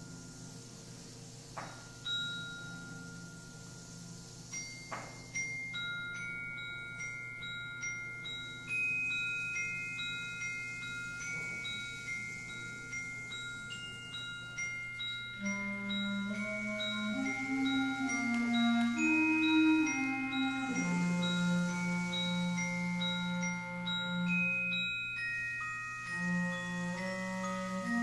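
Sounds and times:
high mallet percussion notes: 0.0 - 28.0
low sustained band notes: 15.0 - 25.0, 26.0 - 28.0.

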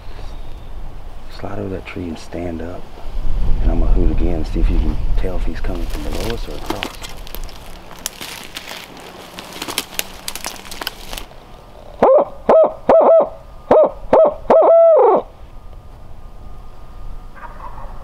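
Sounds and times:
rustling and crackling: 5.4 - 11.4
person hooting like an owl: 12.0 - 15.3.

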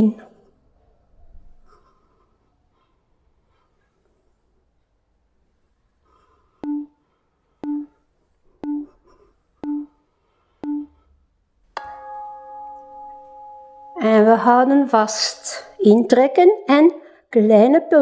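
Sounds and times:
short electronic beeps: 6.6 - 6.9, 7.6 - 7.9, 8.6 - 8.9, 9.6 - 10.0, 10.6 - 10.9
ringing bell-like chime: 11.8 - 14.4.

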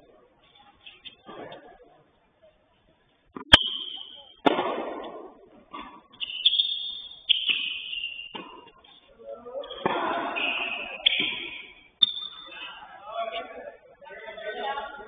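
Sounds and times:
tennis ball strikes: 3.4 - 5.9, 7.3 - 8.7
shoes squeaking on court: 5.7 - 12.6.

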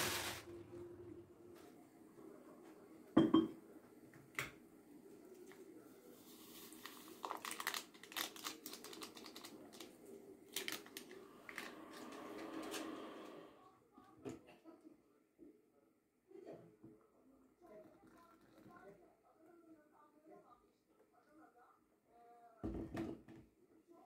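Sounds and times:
paper sachet rustling: 0.0 - 0.5, 6.5 - 12.2
faint hum: 0.4 - 3.1
knock on counter: 22.6 - 23.4.

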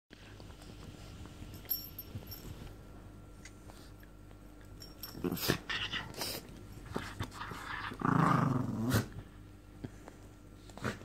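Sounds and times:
dogs scuffling and mouthing: 0.3 - 2.8, 3.4 - 8.0
dogs play growling: 5.0 - 10.0, 10.6 - 11.0.

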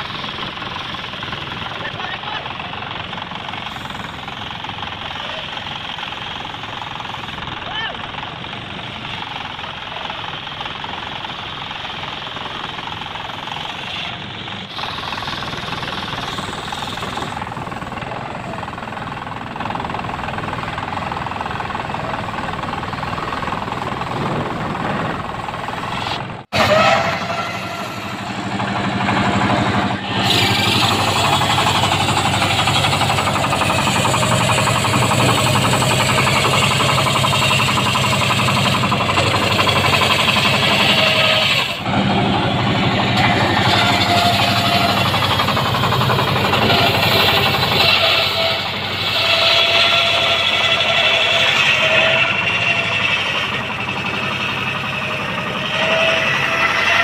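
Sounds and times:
engine humming: 0.0 - 57.0
band saw cutting wood: 12.6 - 57.0.

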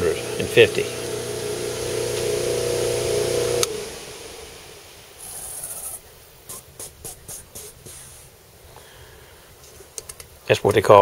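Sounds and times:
soft hiss: 0.0 - 11.0
brief rubbing scrapes: 5.2 - 8.3.

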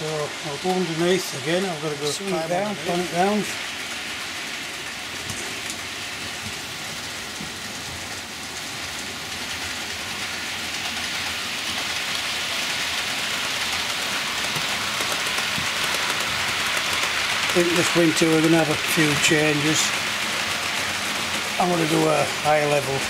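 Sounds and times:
model train wheels rumbling: 0.0 - 23.0.

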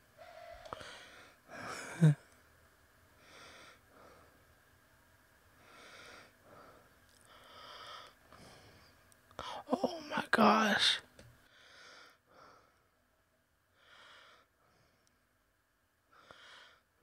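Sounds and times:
person breathing: 0.7 - 2.1, 3.2 - 4.4, 5.6 - 9.7, 11.4 - 12.9, 13.7 - 15.3, 16.1 - 16.9.

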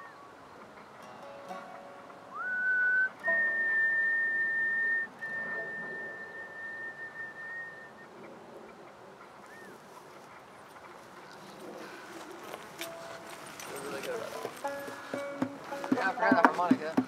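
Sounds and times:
acoustic guitar: 0.8 - 6.2, 12.8 - 17.0
person whistling: 2.3 - 8.0.

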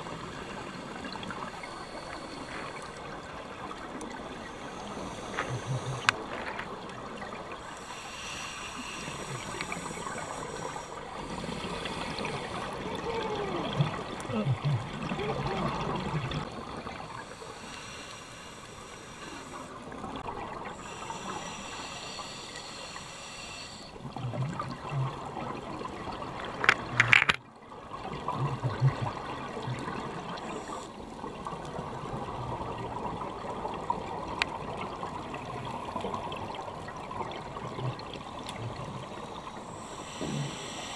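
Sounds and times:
gurgling exhaled bubbles: 0.0 - 17.3, 24.0 - 40.9
scuba regulator hissing inhalations: 0.4 - 3.1, 4.3 - 6.2, 7.6 - 12.8, 17.2 - 19.9, 20.7 - 24.0, 30.4 - 31.0, 39.1 - 40.9.

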